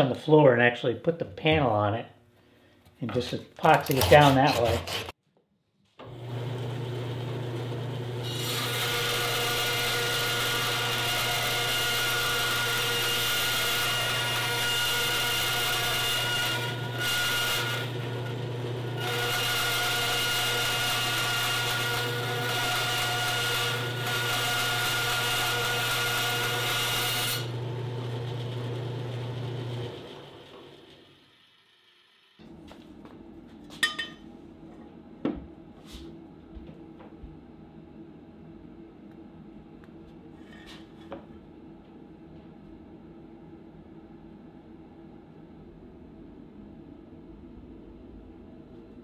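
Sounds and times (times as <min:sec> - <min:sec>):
bandsaw cutting fiberglass tape: 0:03.6 - 0:05.2, 0:08.2 - 0:27.6
bandsaw motor humming: 0:06.0 - 0:32.6.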